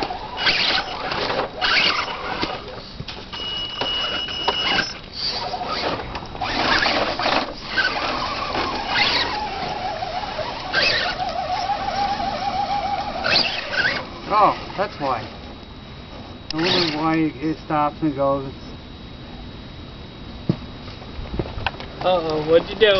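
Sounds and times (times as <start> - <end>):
electric motor whining: 0.0 - 15.2, 16.5 - 17.3
high steady whine: 0.0 - 22.9.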